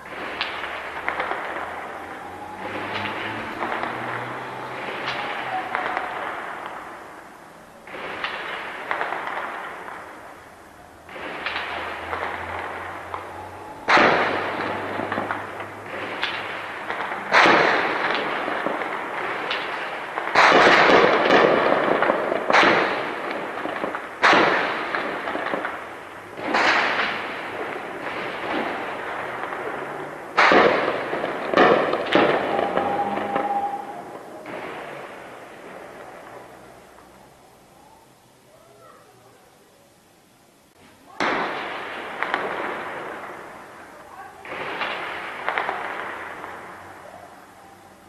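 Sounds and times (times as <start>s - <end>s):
heavy gunfire with echo: 13.9s - 25.8s, 26.4s - 36.0s.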